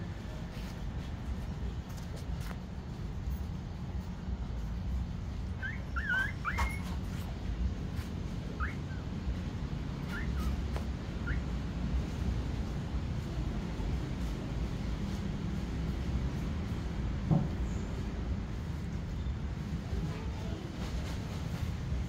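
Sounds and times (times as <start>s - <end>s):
puppies whimpering: 5.6s - 7.1s, 8.5s - 9.1s, 10.0s - 10.6s.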